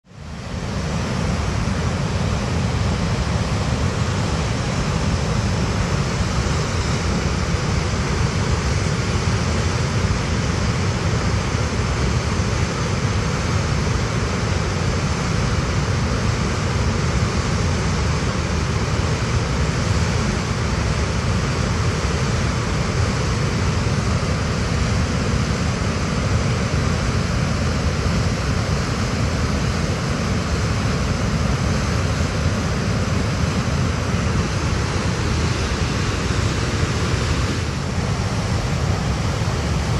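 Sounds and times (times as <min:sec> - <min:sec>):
whitewater rapid rushing: 0:12.8 - 0:39.9.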